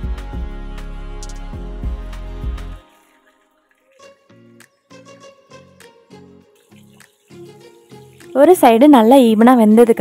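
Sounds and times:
soft background music: 0.0 - 10.0
meat frying in hot oil: 6.6 - 10.0.

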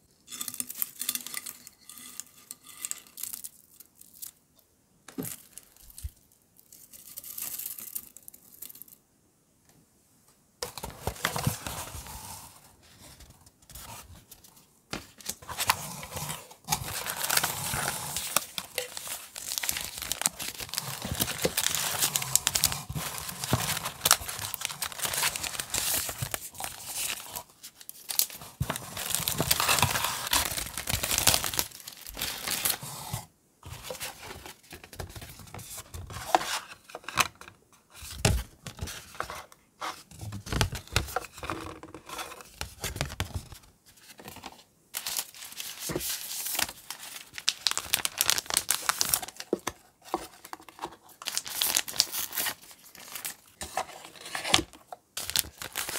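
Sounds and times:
plastic sleeves crinkling: 13.1 - 32.9, 42.8 - 55.9.

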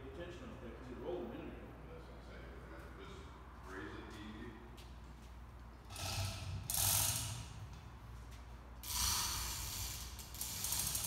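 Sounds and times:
chain running through hoist: 10.0 - 11.0.

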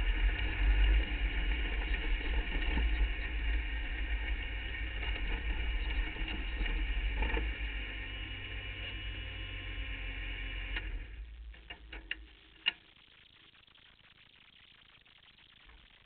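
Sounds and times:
race car engine running: 0.0 - 12.3.

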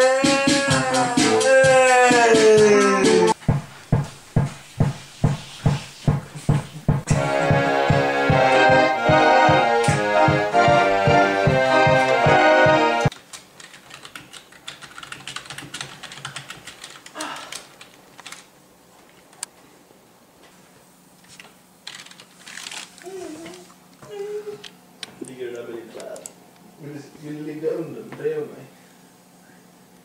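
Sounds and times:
electronic organ playing chords: 7.1 - 13.1
computer keyboard typing: 13.1 - 18.5, 21.8 - 22.2.

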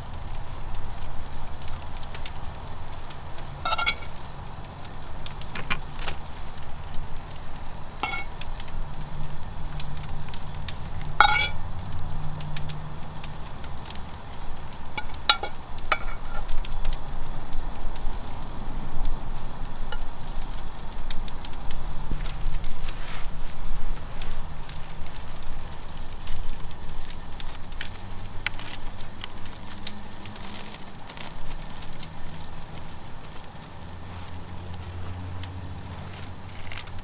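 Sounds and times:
metal spoon scraping saucepan: 3.7 - 4.2, 8.0 - 8.3, 11.2 - 11.6, 15.0 - 16.5.

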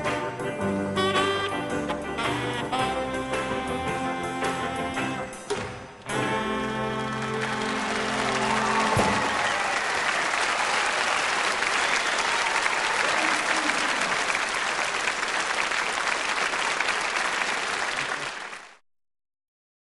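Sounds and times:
audience applauding: 6.2 - 18.8.

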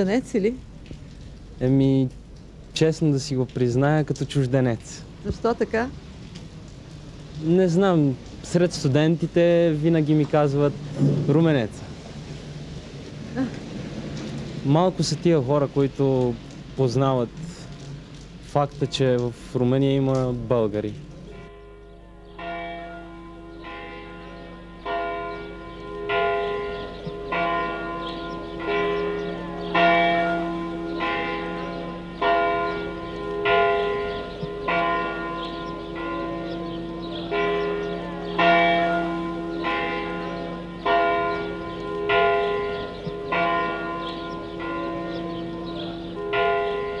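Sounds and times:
church bells ringing: 21.3 - 47.0.

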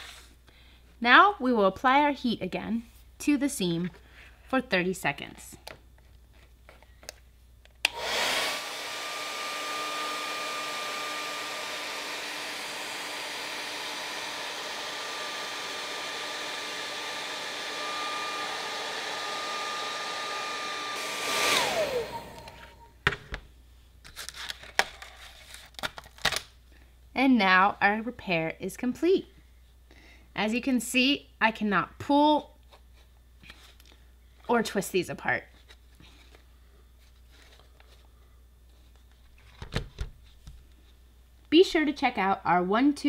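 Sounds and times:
hair dryer running: 7.8 - 22.9.

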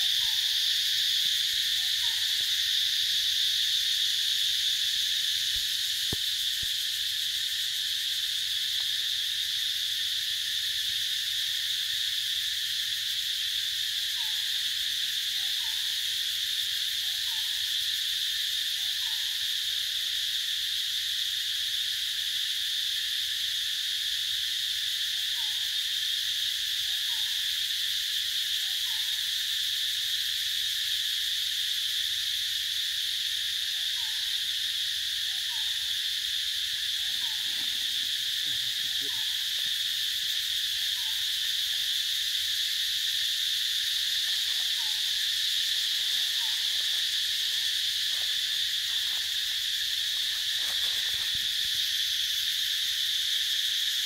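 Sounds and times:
forest insects droning: 0.0 - 54.0.

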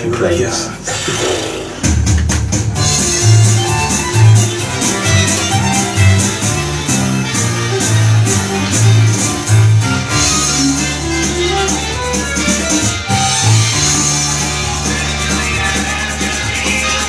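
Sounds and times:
electric guitar: 0.9 - 17.0
pulsing bass line: 1.0 - 17.0
fiddle playing: 2.8 - 14.4.

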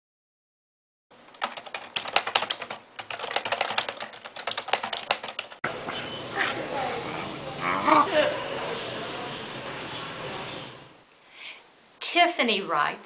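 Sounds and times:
fast typing on keyboard: 1.3 - 5.6
steady background hiss: 5.7 - 13.0.

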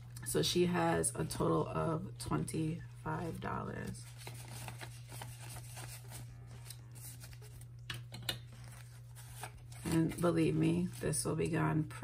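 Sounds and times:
banknotes and envelope rustling: 3.3 - 7.8, 8.4 - 11.3.

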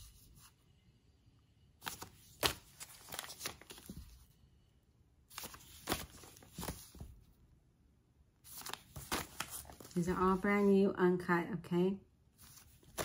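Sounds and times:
paper envelopes rustling: 1.8 - 4.3, 5.3 - 7.2, 8.4 - 10.7, 12.4 - 13.0.

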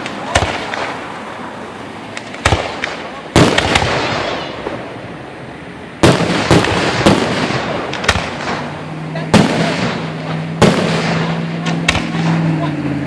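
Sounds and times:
firework shells bursting: 2.1 - 4.9, 6.0 - 12.4.

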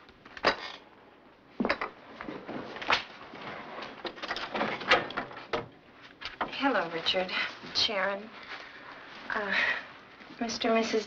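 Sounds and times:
knocks and thumps: 4.0 - 5.8.

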